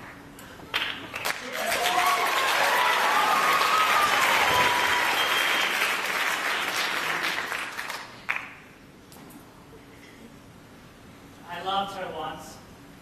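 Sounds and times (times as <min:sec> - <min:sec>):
theatre audience applauding: 0:00.7 - 0:08.6.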